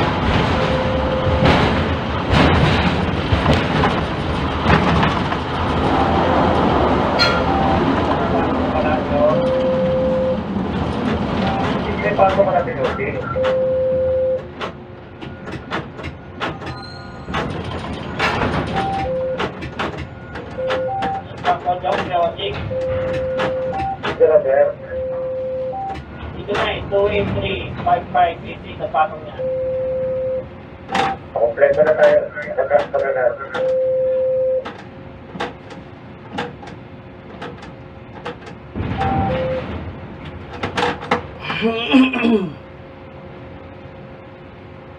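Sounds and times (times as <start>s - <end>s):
rush of noise: 0.0s - 13.4s
crane machinery rumbling: 0.0s - 44.9s
short beeps: 0.6s - 1.5s, 7.2s - 7.9s, 9.2s - 10.4s, 13.2s - 14.5s, 18.8s - 19.4s, 20.2s - 21.3s, 22.6s - 24.0s, 24.8s - 26.0s, 29.4s - 30.5s, 33.5s - 34.6s, 39.0s - 39.7s
sharp clicks and knocks: 14.4s - 24.2s, 34.6s - 41.3s.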